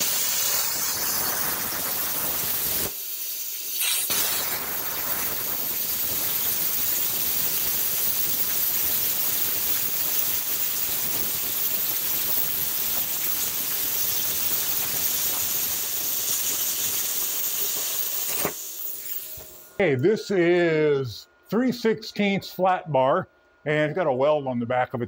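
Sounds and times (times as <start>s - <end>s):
plasma cutter hissing: 0.0s - 19.8s.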